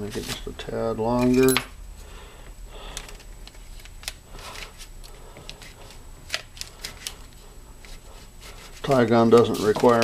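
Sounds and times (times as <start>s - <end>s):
paper rustling: 7.8s - 10.0s.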